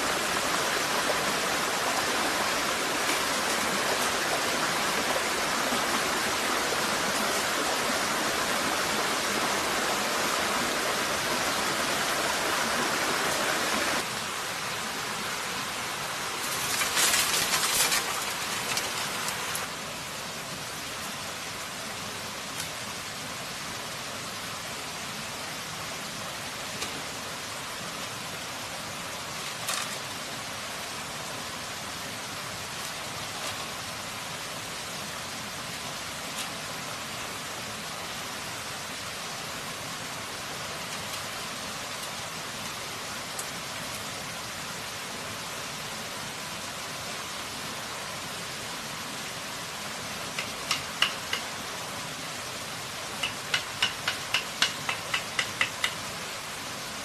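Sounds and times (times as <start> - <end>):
running water hiss: 0.0 - 57.0
bamboo strips knocking: 50.4 - 51.5, 53.2 - 56.0
knife striking bamboo: 53.2 - 56.0.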